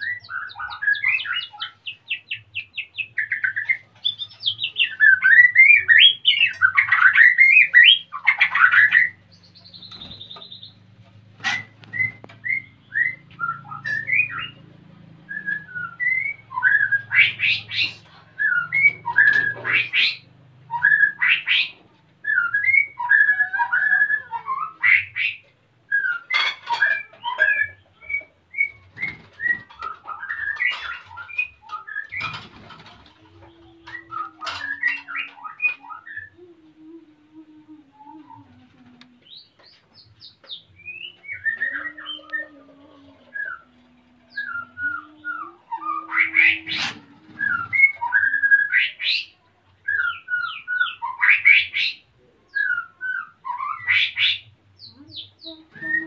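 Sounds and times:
bird singing whistled phrases: 0:15.3 - 0:17.8, 0:18.4 - 0:32.4, 0:40.2 - 0:42.5, 0:43.3 - 0:56.0.

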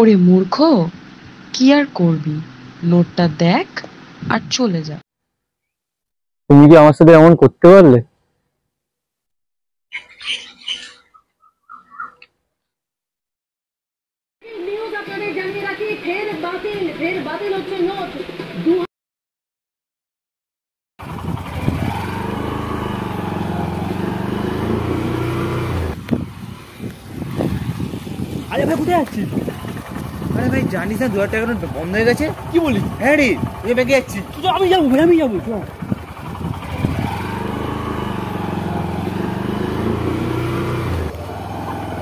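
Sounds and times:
motorcycle engine running: 0:21.0 - 0:42.0.

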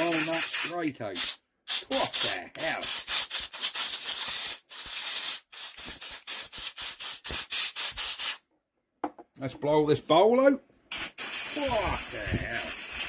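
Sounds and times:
compressed air gun hissing: 0:00.1 - 0:08.4, 0:10.9 - 0:13.0.

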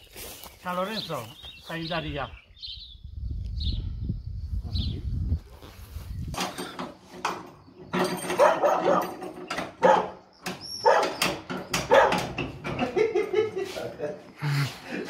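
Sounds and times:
key rattling in a lock: 0:08.0 - 0:10.0
dog barking and whining: 0:08.3 - 0:12.4.

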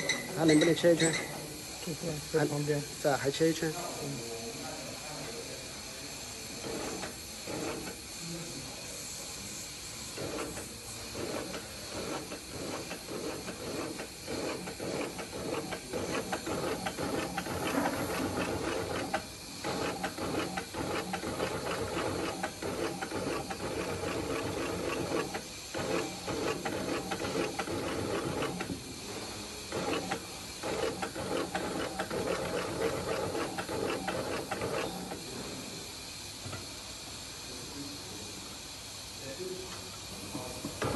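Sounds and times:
steady hiss: 0:00.0 - 0:40.9
industrial sewing machine stitching: 0:06.6 - 0:08.0, 0:10.2 - 0:28.8, 0:29.7 - 0:35.2.

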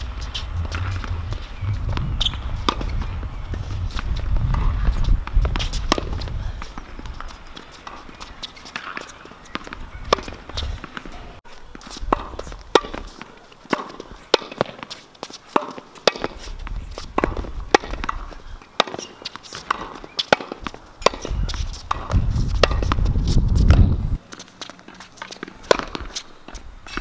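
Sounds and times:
low rumble: 0:00.0 - 0:05.0
tennis balls struck and bouncing: 0:00.0 - 0:24.0, 0:24.6 - 0:27.0.

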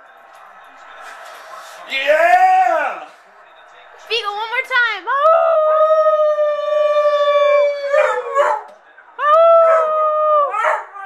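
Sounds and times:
dog howling: 0:05.2 - 0:08.7, 0:09.4 - 0:11.0.

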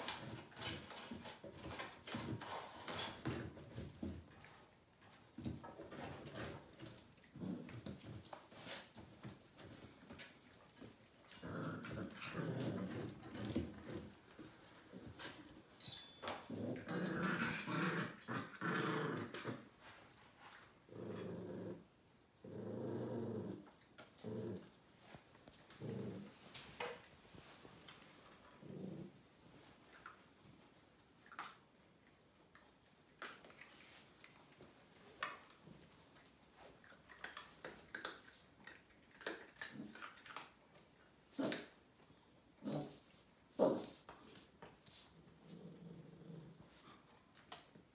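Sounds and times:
pet growling: 0:11.2 - 0:14.1, 0:16.4 - 0:19.7, 0:20.9 - 0:24.8, 0:25.4 - 0:26.5, 0:28.4 - 0:29.2, 0:45.2 - 0:47.0.

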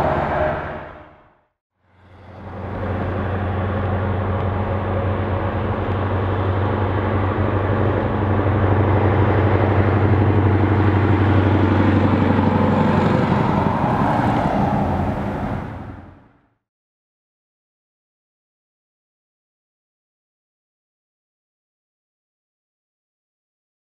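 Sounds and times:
truck engine passing: 0:00.0 - 0:16.6.

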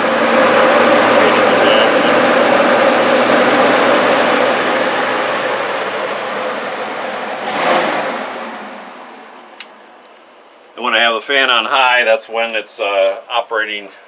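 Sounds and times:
air purifier fan running: 0:00.0 - 0:07.4.

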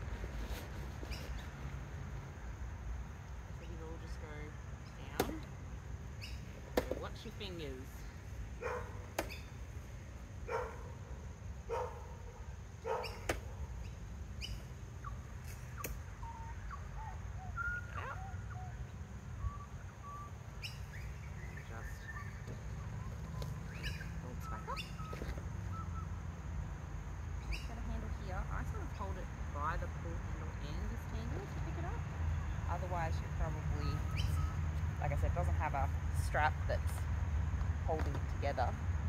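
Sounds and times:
birds chirping: 0:02.4 - 0:37.1
animal calling: 0:14.4 - 0:26.2.

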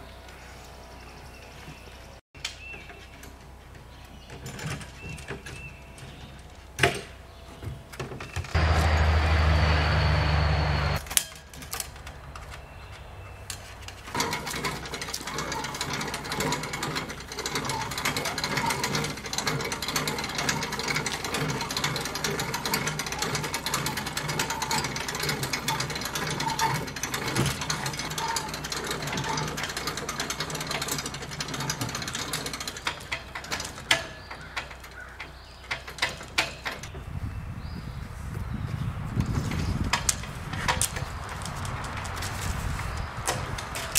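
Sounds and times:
hand winch ratcheting: 0:13.5 - 0:36.9, 0:39.5 - 0:42.5, 0:43.2 - 0:43.9.

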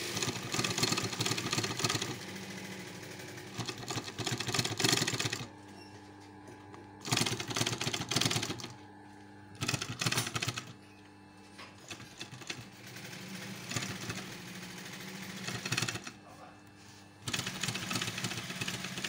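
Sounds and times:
sewing machine needle strokes: 0:00.0 - 0:05.5, 0:07.0 - 0:08.7, 0:09.6 - 0:10.8, 0:11.8 - 0:16.2, 0:17.2 - 0:19.0
sewing machine motor hum: 0:00.0 - 0:19.0.

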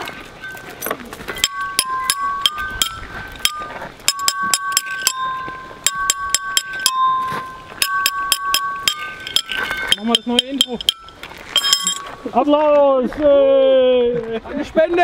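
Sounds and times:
stone bars struck with metal rod: 0:01.4 - 0:12.1.

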